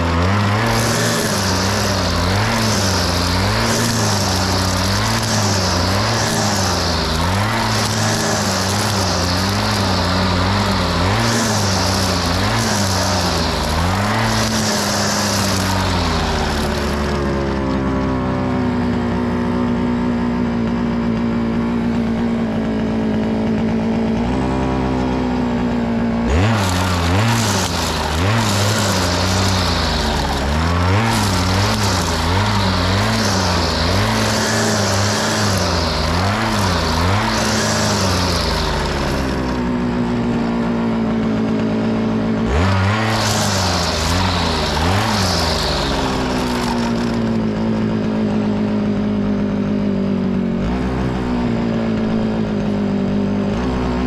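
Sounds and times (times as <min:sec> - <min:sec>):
cutting line hissing: 0:00.0 - 0:17.3, 0:26.3 - 0:40.0, 0:42.6 - 0:48.2
grass trimmer motor: 0:00.0 - 0:54.0.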